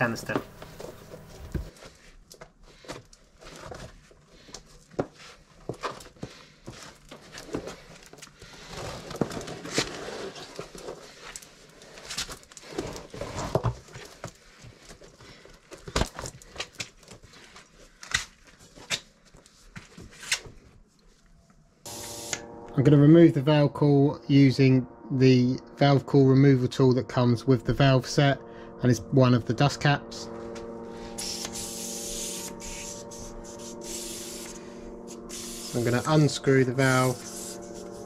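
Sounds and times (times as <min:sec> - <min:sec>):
rushing air from pump: 0:31.0 - 0:36.1.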